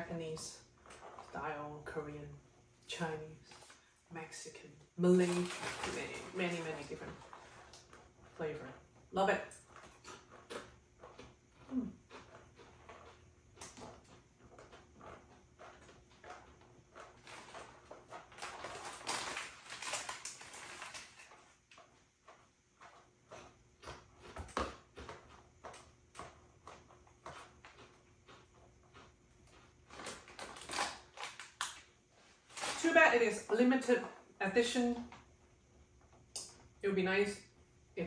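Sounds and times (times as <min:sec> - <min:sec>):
foil bag crinkling: 0:05.0 - 0:08.6, 0:17.0 - 0:21.9, 0:29.8 - 0:33.5
potato chips crunching: 0:05.1 - 0:08.4, 0:09.4 - 0:21.9, 0:22.8 - 0:33.5.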